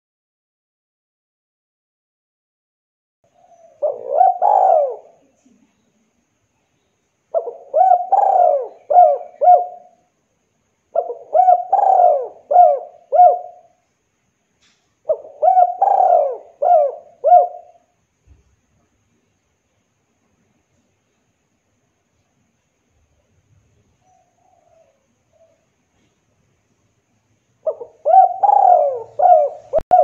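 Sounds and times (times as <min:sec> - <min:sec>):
dove cooing: 0:03.4 - 0:05.3, 0:07.3 - 0:10.0, 0:10.9 - 0:13.8, 0:15.1 - 0:17.9, 0:24.0 - 0:25.7, 0:27.6 - 0:30.0.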